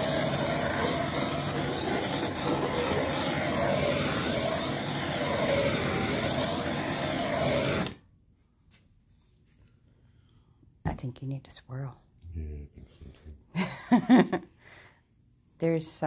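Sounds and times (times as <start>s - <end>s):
gas torch flame: 0.0s - 8.0s.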